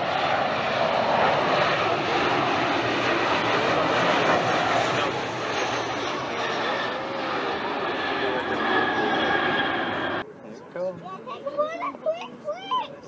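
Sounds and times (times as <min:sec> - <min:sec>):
airliner engines roaring: 0:00.0 - 0:10.4.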